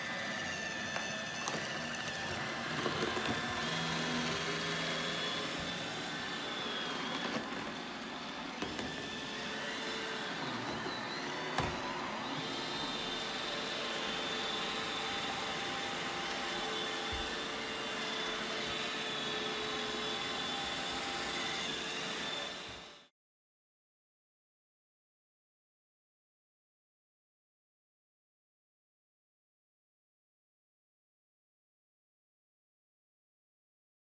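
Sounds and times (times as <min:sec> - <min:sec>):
robot vacuum whirring: 0:00.0 - 0:23.1.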